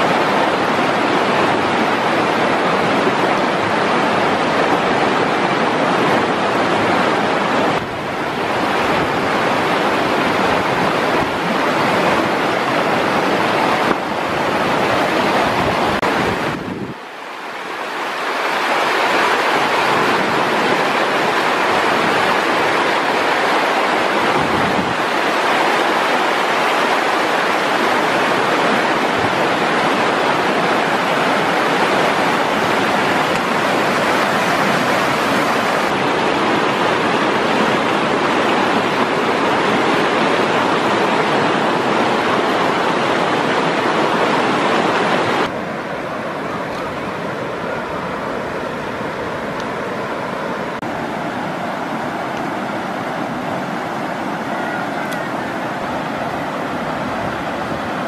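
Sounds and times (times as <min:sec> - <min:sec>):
river rapids rushing over rocks: 0:00.0 - 0:58.0.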